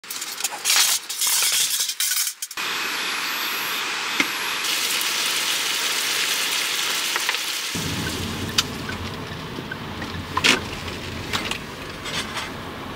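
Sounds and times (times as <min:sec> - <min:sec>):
stove hissing: 0:02.6 - 0:12.9.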